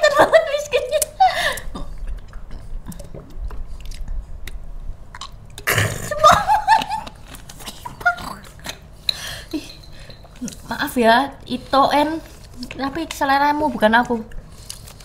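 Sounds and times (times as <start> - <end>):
person belching: 5.6 - 6.3.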